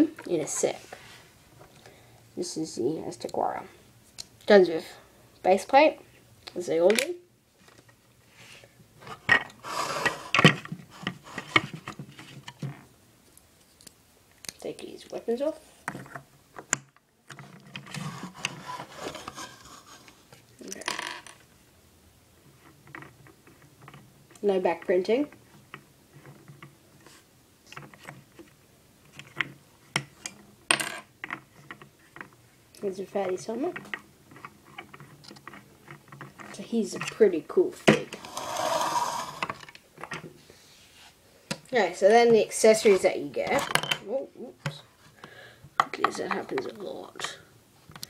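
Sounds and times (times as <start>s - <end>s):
scraping rub: 9.6s - 11.7s, 18.0s - 20.2s, 38.2s - 39.6s.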